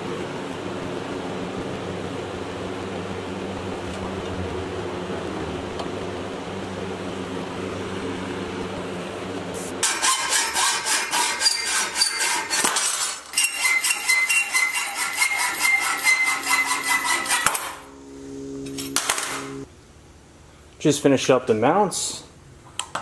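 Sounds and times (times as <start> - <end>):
hacksaw cutting steel rod: 9.8 - 17.9.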